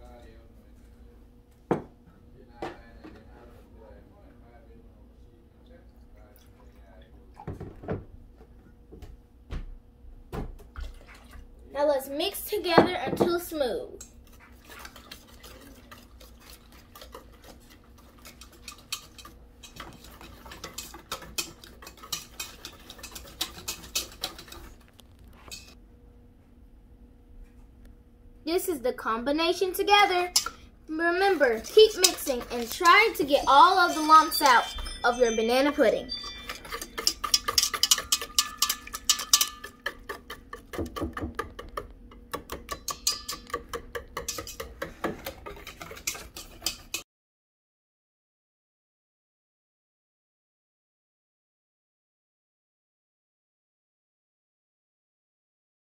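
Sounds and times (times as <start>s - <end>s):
whisk clinking against steel bowl: 14.0s - 24.8s, 25.5s - 25.8s, 30.2s - 47.0s.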